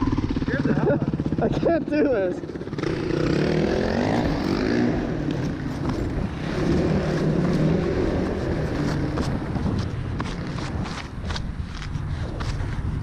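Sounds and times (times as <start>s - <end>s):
dirt bike engine revving: 0.0s - 9.6s.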